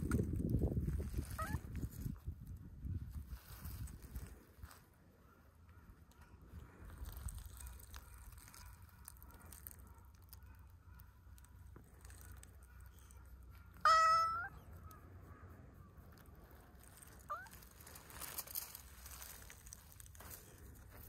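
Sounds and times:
cat meowing: 0:01.4 - 0:01.6, 0:13.8 - 0:14.6.

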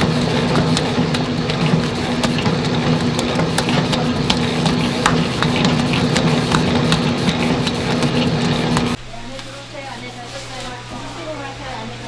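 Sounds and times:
electric mixer motor humming: 0:00.0 - 0:09.0.

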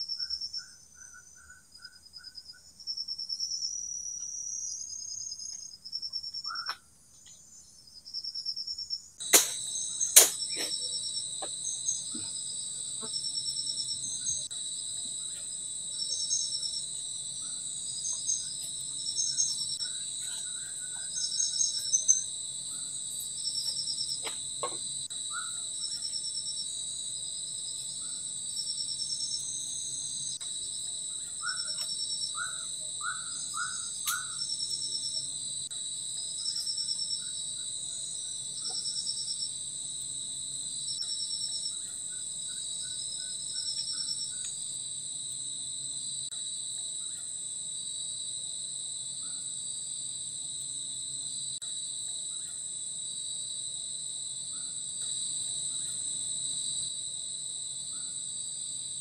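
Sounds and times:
bird chirping: 0:00.0 - 0:02.8, 0:03.7 - 0:07.9, 0:31.1 - 0:35.0
trilling insect call: 0:00.0 - 0:59.0
high-pitched insect drone: 0:09.2 - 0:46.4
sharp click: 0:09.3 - 0:10.8.

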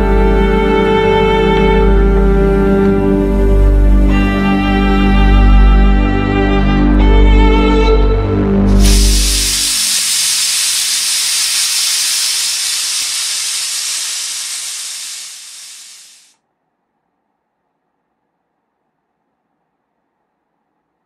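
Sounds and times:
pressure cooker steam hissing: 0:08.7 - 0:16.3.

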